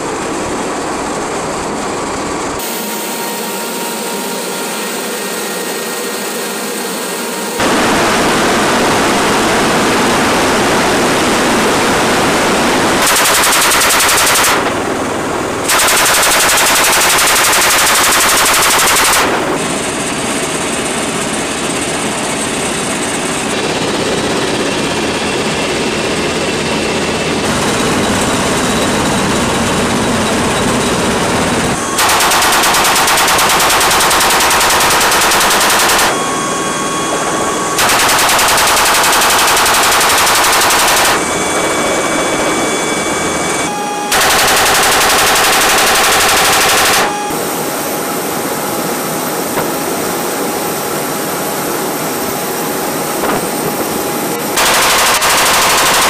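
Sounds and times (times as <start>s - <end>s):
aircraft engine and wind noise: 0.0s - 56.0s
machine gun firing bursts: 12.9s - 15.0s, 15.6s - 19.7s, 32.0s - 36.3s, 37.8s - 42.6s, 44.1s - 47.4s, 54.6s - 56.0s.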